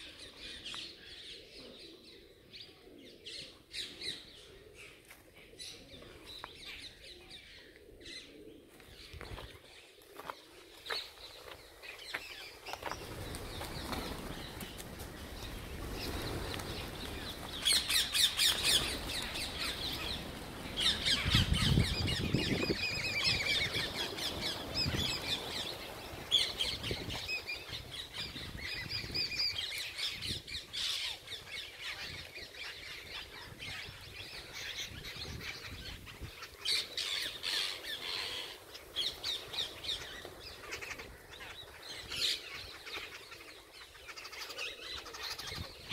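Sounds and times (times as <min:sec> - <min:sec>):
flock of birds squawking: 0:11.8 - 0:31.2, 0:31.8 - 0:45.9.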